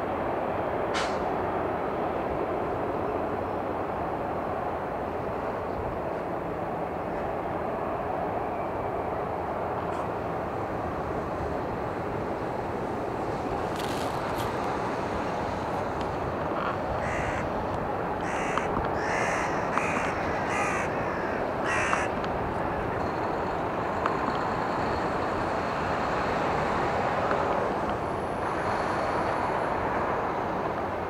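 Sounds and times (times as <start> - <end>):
airliner taxiing rumble: 0.0 - 31.0
bird cawing: 16.6 - 17.6, 18.2 - 22.9.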